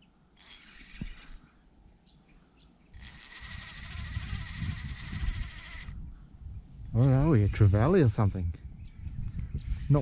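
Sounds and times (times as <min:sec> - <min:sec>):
fishing reel drag clicking: 0:00.4 - 0:01.4, 0:03.0 - 0:06.0.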